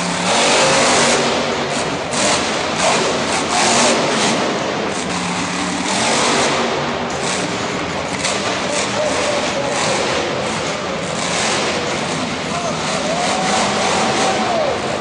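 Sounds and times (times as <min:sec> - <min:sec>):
monster truck engine revving: 0:00.0 - 0:15.0.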